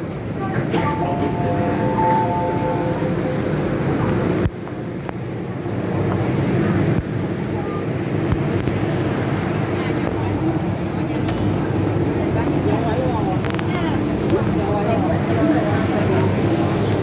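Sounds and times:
passengers chatting: 0:00.0 - 0:17.0
train low rumble: 0:00.0 - 0:17.0
electronic tones: 0:00.8 - 0:03.8.

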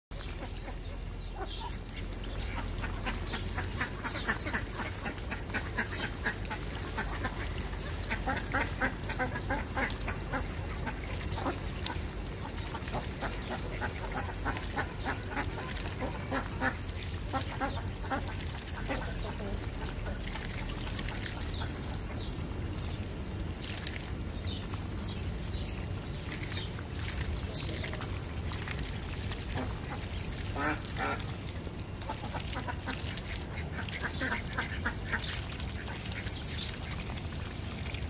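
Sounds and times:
ducks quacking: 0:00.2 - 0:22.4, 0:29.4 - 0:37.2.

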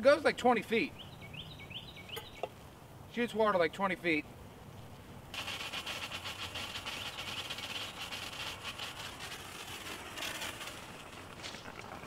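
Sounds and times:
water stream hissing from nozzle: 0:05.3 - 0:11.3.

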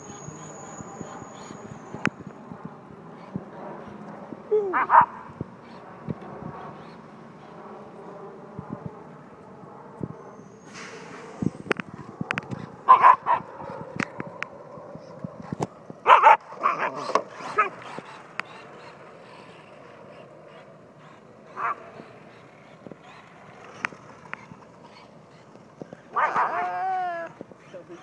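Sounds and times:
puppy barking: 0:04.7 - 0:05.3, 0:12.9 - 0:13.5, 0:16.0 - 0:17.8, 0:21.6 - 0:21.9, 0:26.1 - 0:27.0.

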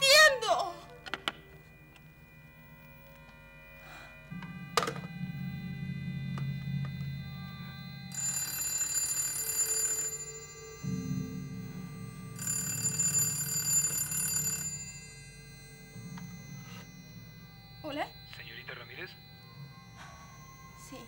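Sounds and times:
low background music: 0:00.0 - 0:21.0
telephone bell ringing: 0:06.3 - 0:21.0.

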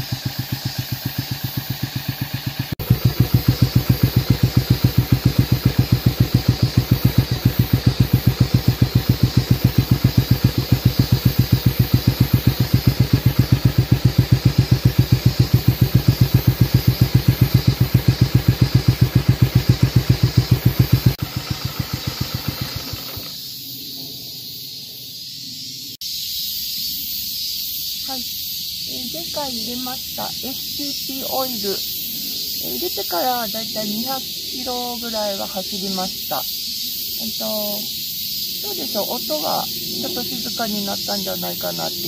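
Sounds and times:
motorcycle engine idling: 0:00.0 - 0:23.5.

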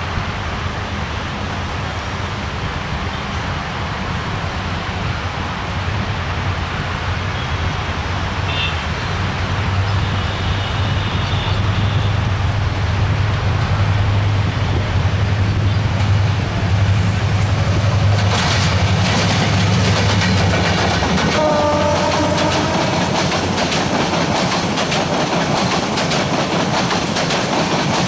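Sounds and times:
locomotive engine drone: 0:09.0 - 0:24.8
train wheels clattering over rails: 0:12.3 - 0:28.0.

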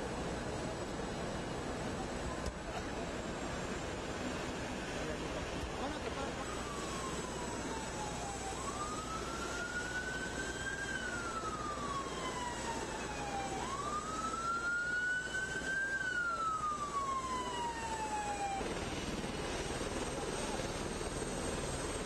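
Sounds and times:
emergency siren wailing: 0:05.8 - 0:22.0.

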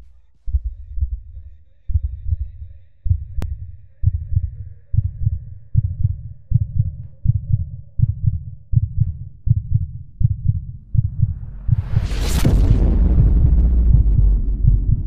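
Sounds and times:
heartbeat thumps: 0:00.0 - 0:15.0.

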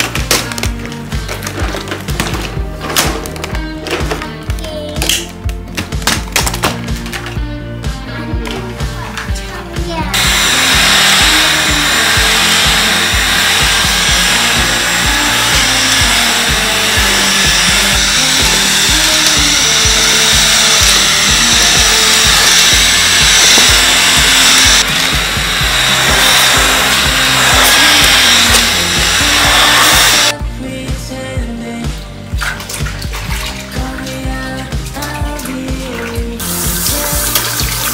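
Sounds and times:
background music with steady beat: 0:00.0 - 0:37.9
vacuum mop motor humming: 0:10.1 - 0:30.4.

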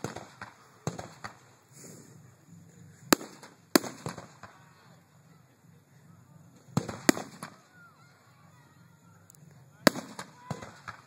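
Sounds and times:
fireworks bursting with bangs: 0:00.0 - 0:05.4, 0:06.5 - 0:08.1, 0:09.8 - 0:11.0.

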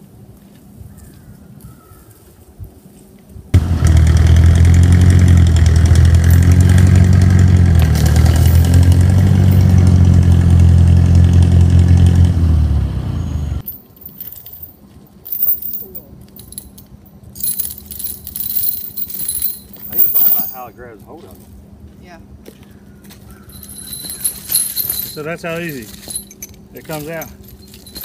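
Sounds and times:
vehicle engine running under load: 0:03.6 - 0:13.7.

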